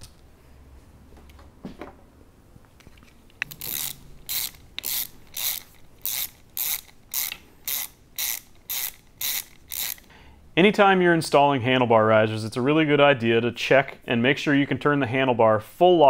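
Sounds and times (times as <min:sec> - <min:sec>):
ratchet wrench clicking: 0:03.4 - 0:10.1.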